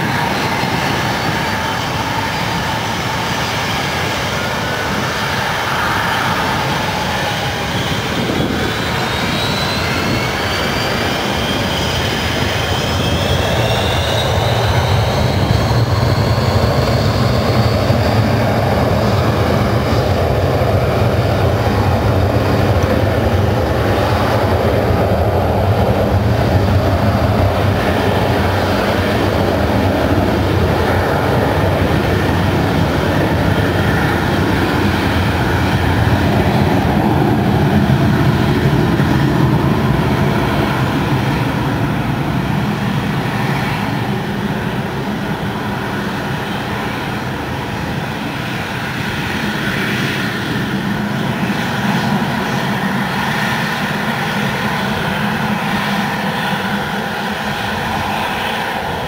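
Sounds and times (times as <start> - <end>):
jet engines roaring: 0.0 - 59.0.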